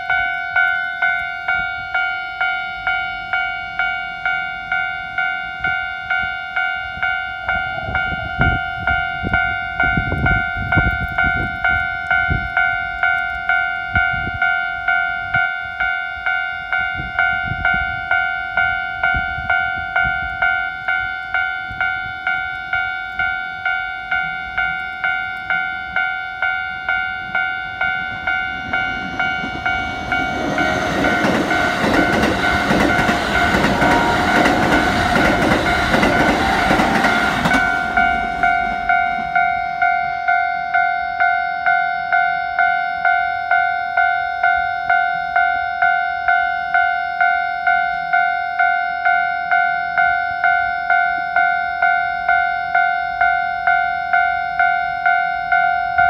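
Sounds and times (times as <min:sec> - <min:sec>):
level crossing alarm dinging: 0:00.0 - 0:56.0
train wheels clacking on rail joints: 0:28.0 - 0:39.6.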